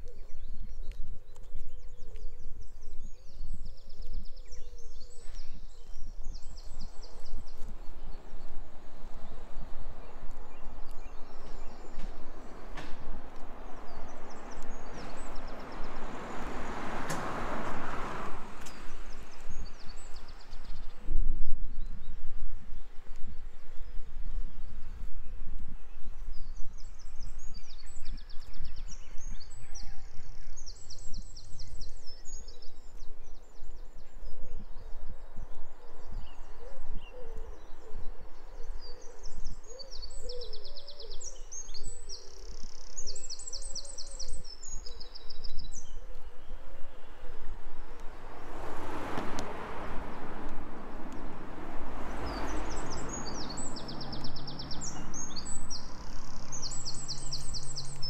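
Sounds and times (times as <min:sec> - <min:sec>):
songbird trilling: 0:52.3 - 0:58.0.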